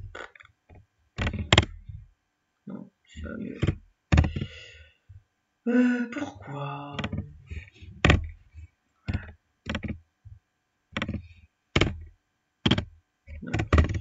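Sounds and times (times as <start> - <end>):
computer mouse clicking: 1.2 - 1.8, 3.5 - 4.5, 6.9 - 8.4, 9.1 - 10.0, 11.0 - 14.0.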